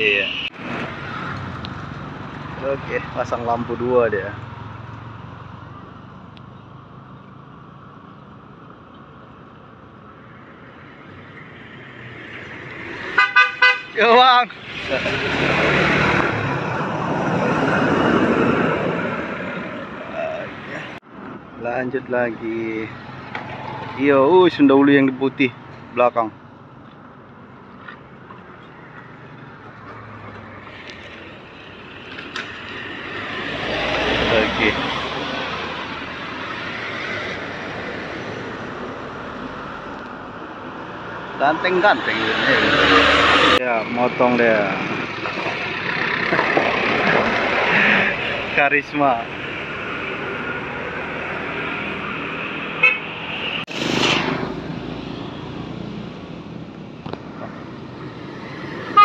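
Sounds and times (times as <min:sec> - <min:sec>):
hum of traffic: 0:00.0 - 0:59.0
tyres on rough asphalt: 0:00.5 - 0:59.0
minibus engine approaching: 0:41.9 - 0:59.0.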